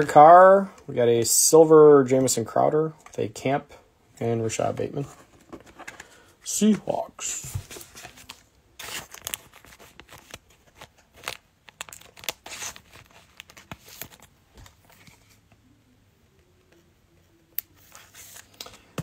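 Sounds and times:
plastic wrapper tearing and crinkling: 8.0s - 14.3s.

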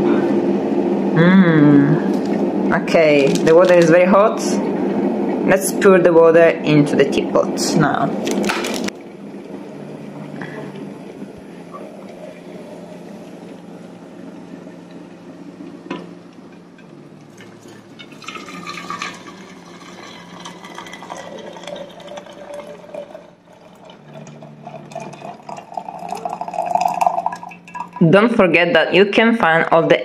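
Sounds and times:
hot water pouring into teapot: 17.2s - 28.0s.

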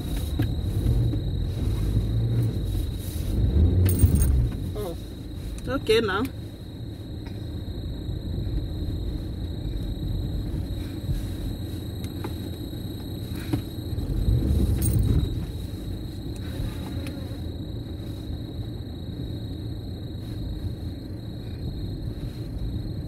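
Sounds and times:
car engine revving: 0.0s - 5.0s, 13.8s - 15.7s.

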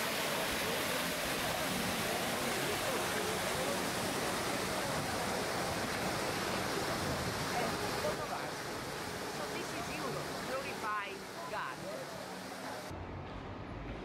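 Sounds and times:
faint crowd voices: 0.0s - 12.9s
fountain water splashing: 0.0s - 12.9s.

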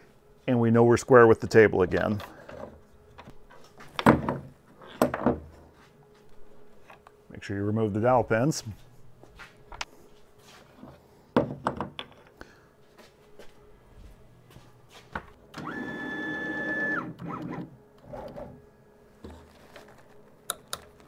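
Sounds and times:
stepper motor whine: 15.5s - 18.6s.

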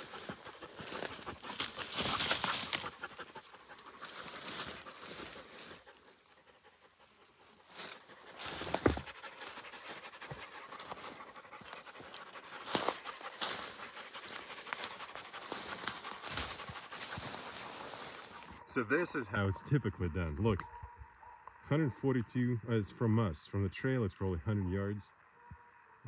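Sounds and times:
dogs panting hard: 0.0s - 18.6s.

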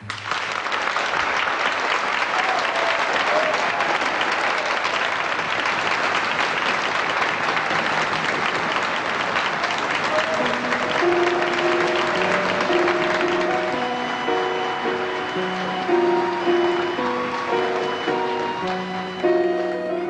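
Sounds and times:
audience applause: 0.0s - 20.0s
instrumental music: 10.2s - 20.0s.

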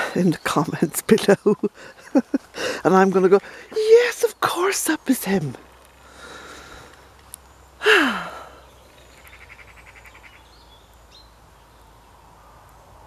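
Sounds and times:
woman sighing: 7.8s - 8.6s.

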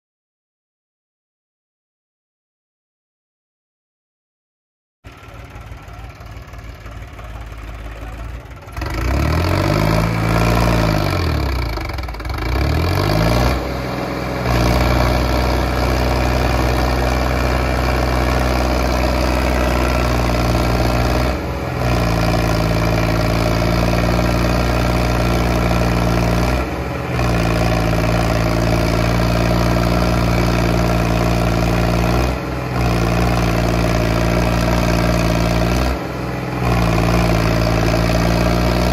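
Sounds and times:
tractor diesel engines revving: 5.1s - 38.9s.

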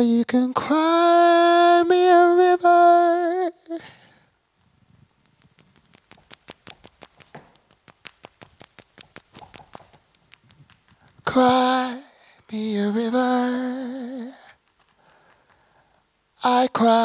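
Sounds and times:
light irregular clicks: 5.0s - 11.7s.

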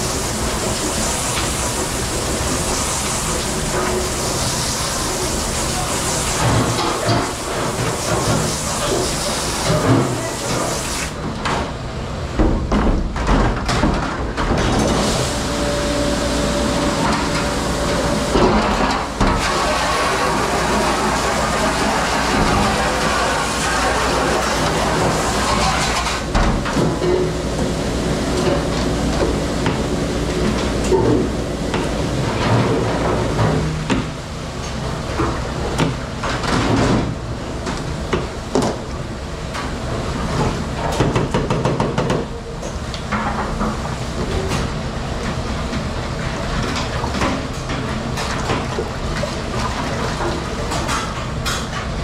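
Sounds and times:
dish machine humming: 0.0s - 11.3s, 14.7s - 36.4s.

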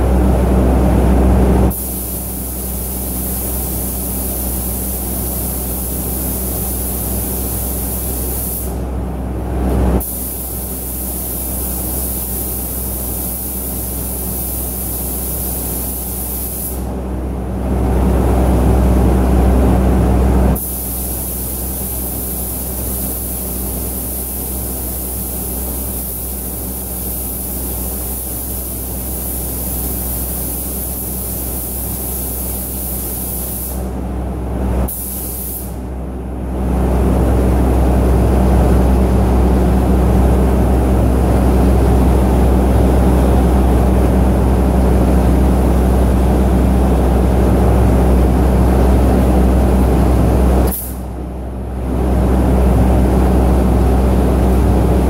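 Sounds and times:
spray booth extraction drone: 1.2s - 8.9s, 9.6s - 16.9s, 20.5s - 33.9s
air spray gun hissing: 1.7s - 8.8s, 10.0s - 16.9s, 20.6s - 33.9s, 34.8s - 35.8s, 50.7s - 51.1s.

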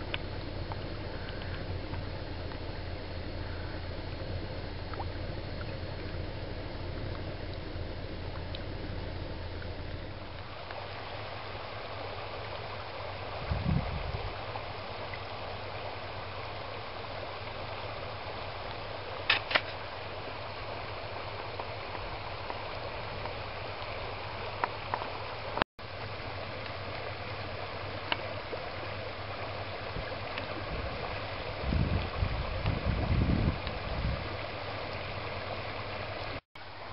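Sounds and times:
low rumble: 0.0s - 19.2s.

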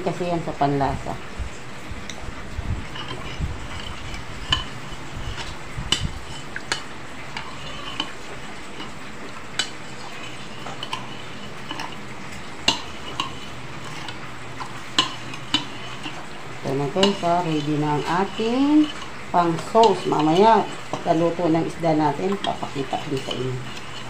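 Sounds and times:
spoon stirring sauce: 2.8s - 24.0s.

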